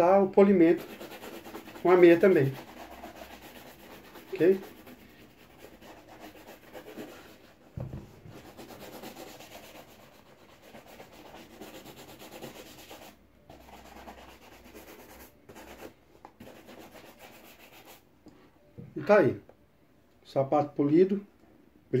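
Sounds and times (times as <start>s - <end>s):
shoe brush rubbing leather: 0.8s - 7.6s, 8.3s - 18.0s
dull knock: 7.8s - 8.4s.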